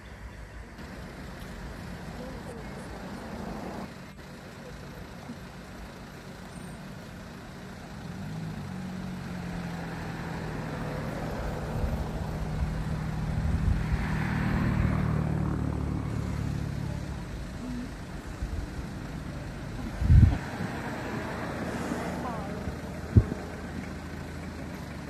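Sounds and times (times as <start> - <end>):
vehicle engine passing by: 0.8 - 4.0, 7.6 - 25.0.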